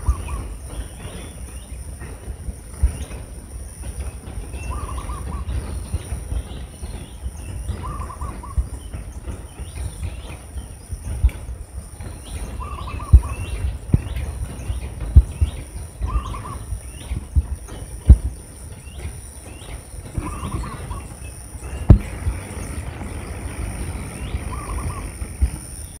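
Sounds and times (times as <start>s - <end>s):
small birds chirping: 0.0s - 26.0s
dove cooing: 16.0s - 16.7s, 20.2s - 21.2s, 21.9s - 25.5s.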